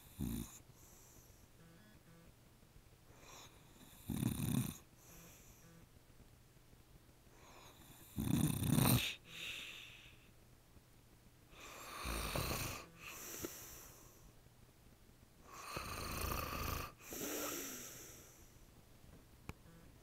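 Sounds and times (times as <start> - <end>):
man snoring: 0.0 - 0.6, 3.2 - 5.6, 7.8 - 9.7, 11.6 - 13.7, 15.5 - 18.4
quiet breath: 0.0 - 1.7, 3.1 - 4.1, 4.8 - 5.9, 7.3 - 8.2, 9.0 - 10.4, 11.5 - 14.4, 16.5 - 18.7.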